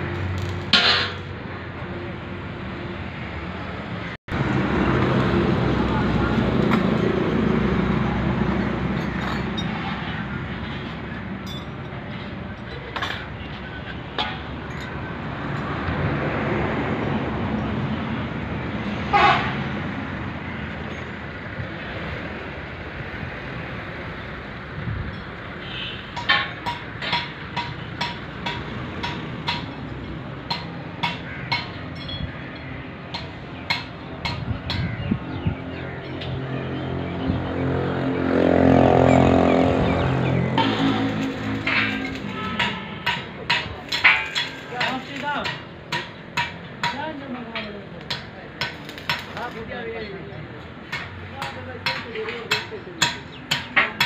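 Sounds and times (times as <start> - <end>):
hum of yard noise: 0.0 - 54.0
hammer striking steel: 26.1 - 32.3, 33.1 - 34.9, 40.5 - 49.6, 50.9 - 54.0.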